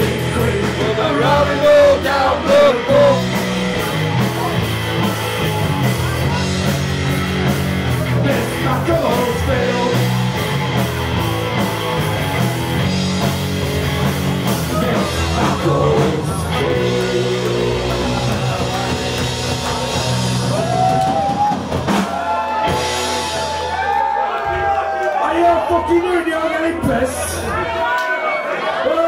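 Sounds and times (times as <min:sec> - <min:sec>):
male lead vocal: 0:00.0 - 0:03.4, 0:08.0 - 0:10.2, 0:14.5 - 0:19.8
electric guitar: 0:00.0 - 0:24.6
drum kit: 0:00.0 - 0:25.0
bass: 0:00.0 - 0:27.9.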